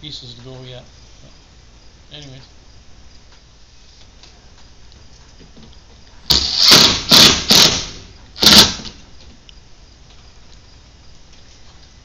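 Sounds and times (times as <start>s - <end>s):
cordless drill driving a screw: 6.3s - 8.9s.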